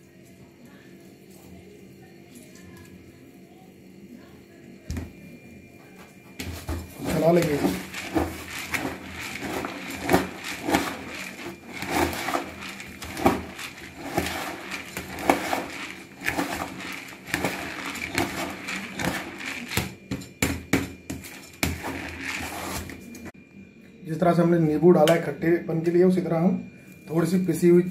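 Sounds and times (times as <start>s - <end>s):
spoon scraping plastic tub: 6.4s - 20.2s, 21.1s - 23.3s
puffed rice crunchy rustling: 6.6s - 20.1s, 21.2s - 23.1s.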